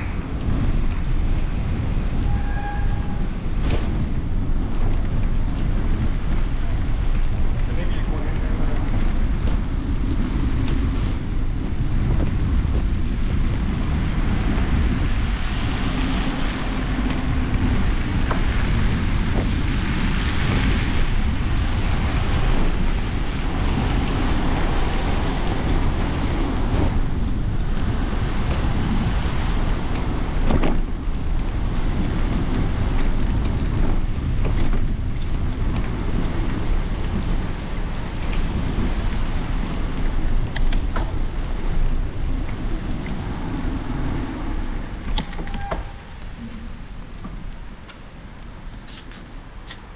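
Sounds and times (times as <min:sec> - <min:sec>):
wind buffeting microphone: 0:00.0 - 0:49.9.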